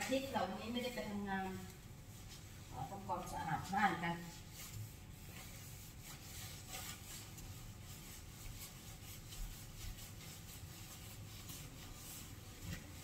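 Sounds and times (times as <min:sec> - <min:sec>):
sponge scrubbing metal: 0:00.0 - 0:13.0.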